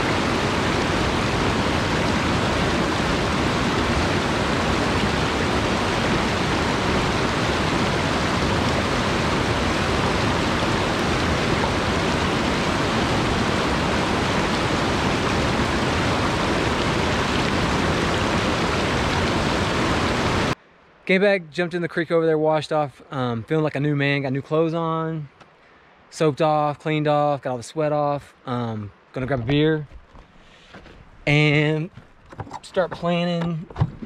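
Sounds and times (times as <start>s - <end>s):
mountain stream rushing over boulders: 0.0s - 20.6s.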